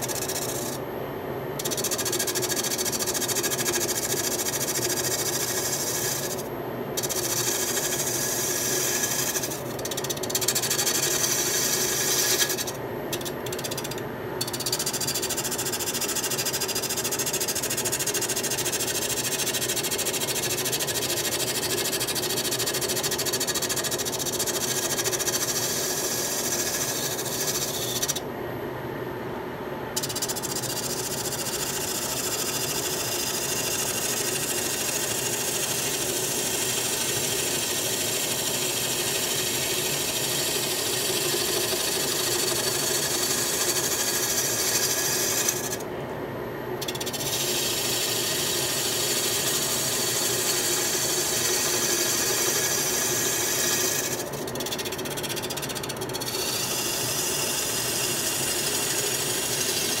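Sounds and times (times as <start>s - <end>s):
lathe motor hum: 0.0s - 0.8s, 3.9s - 6.4s, 7.0s - 14.9s, 24.2s - 28.2s, 31.6s - 45.8s, 46.8s - 60.0s
lathe tool cutting wood: 0.1s - 0.8s, 4.0s - 6.4s, 7.0s - 12.7s, 25.0s - 28.2s, 31.8s - 45.8s, 46.9s - 54.3s, 55.8s - 60.0s.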